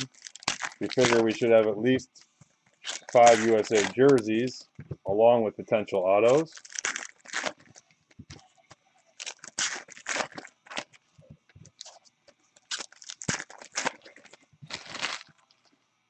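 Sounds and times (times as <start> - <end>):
pack wrappers crinkling: 0.0 - 1.7, 2.8 - 4.5, 6.2 - 8.4, 9.2 - 11.0, 12.6 - 15.7.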